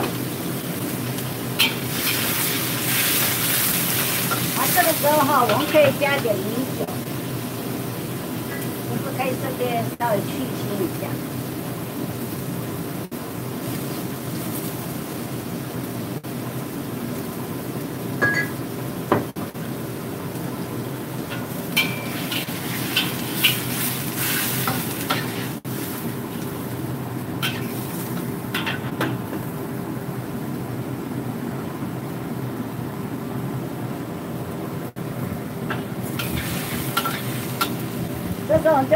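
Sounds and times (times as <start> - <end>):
constant hum: 0.0 - 38.9
wok sizzling: 0.0 - 38.9
spatula scraping a wok: 1.6 - 6.0, 21.3 - 26.0, 27.4 - 28.9, 36.1 - 37.8.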